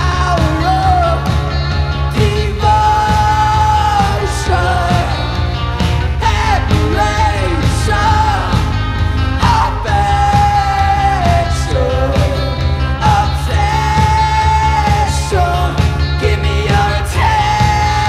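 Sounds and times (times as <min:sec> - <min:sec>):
rock band playing live: 0:00.0 - 0:18.0.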